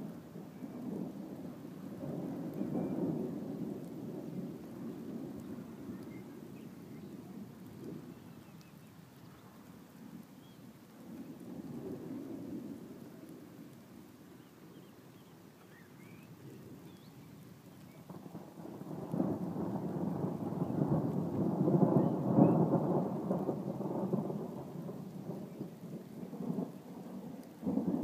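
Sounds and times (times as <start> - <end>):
rolling thunder: 0.0 - 8.3, 18.0 - 28.0.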